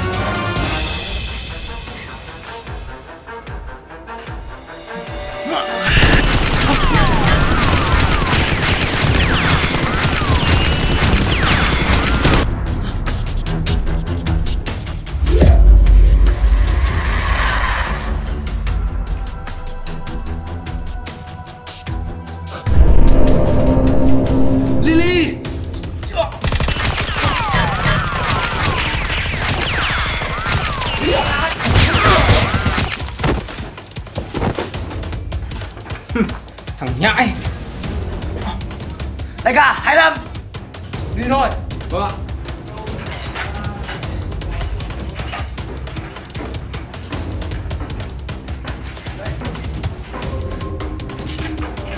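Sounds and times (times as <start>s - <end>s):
rapid gunfire: 5.9s - 12.5s, 26.4s - 33.1s
falling whistles: 28.3s - 31.4s, 38.9s - 39.5s.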